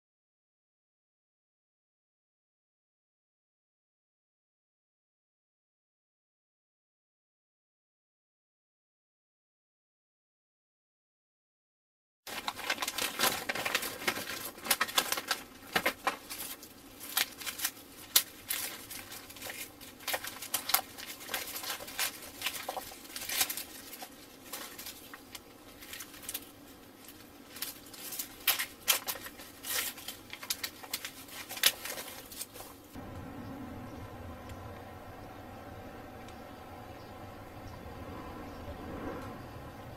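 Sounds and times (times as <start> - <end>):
paper packs crinkling: 12.3 - 33.0
plastic glove rustling: 12.3 - 33.0.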